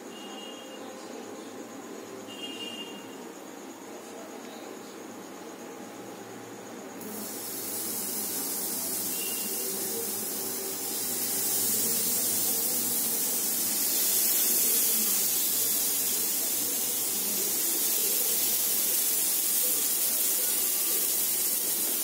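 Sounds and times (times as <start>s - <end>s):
skewers sizzling on hot pan: 7.0s - 22.0s.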